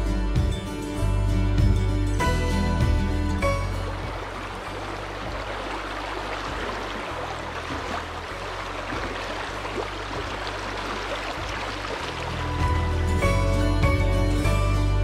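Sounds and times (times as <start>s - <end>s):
river water rushing over rocks: 3.4s - 13.2s.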